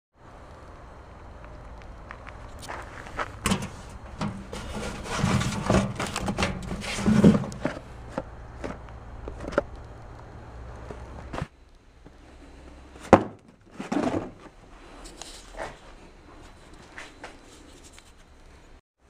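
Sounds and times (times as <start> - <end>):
parcel scraping out of mailbox: 2.6 - 9.6
metal mailbox opening: 3.4 - 7.8.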